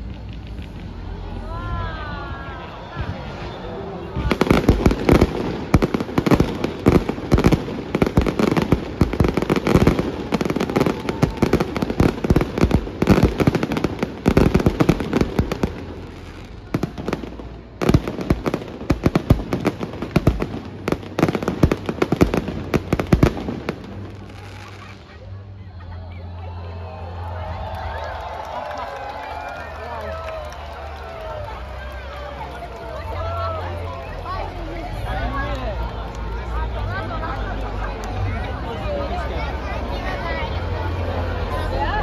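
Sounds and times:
fireworks bursting: 3.0 - 25.2.

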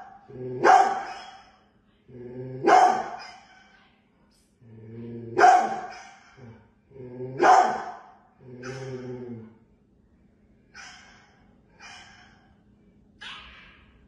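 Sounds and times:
dog barking: 0.0 - 1.6, 2.6 - 3.6, 5.4 - 6.4, 7.4 - 8.9, 10.7 - 12.5
large dog growling: 0.3 - 0.6, 2.1 - 2.7, 4.6 - 5.4, 6.4 - 7.4, 8.4 - 9.6.

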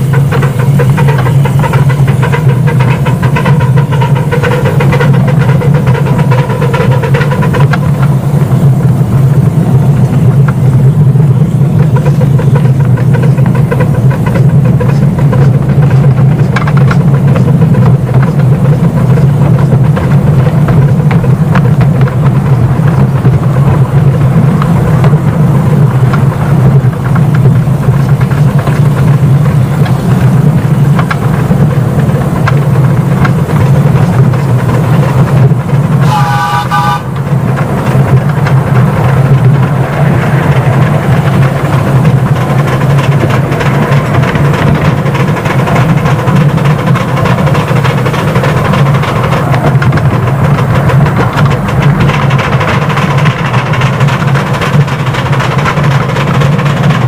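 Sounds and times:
steam locomotive rumbling: 0.0 - 57.0
steam whistle blast: 36.0 - 37.2.

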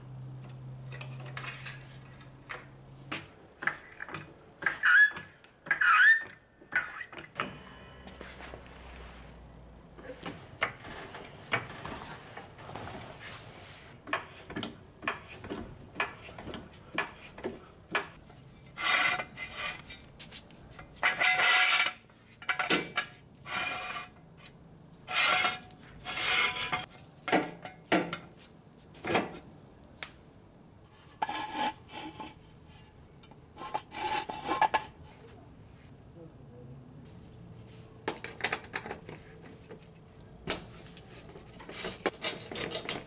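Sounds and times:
metal scraping rasps: 25.1 - 26.9.

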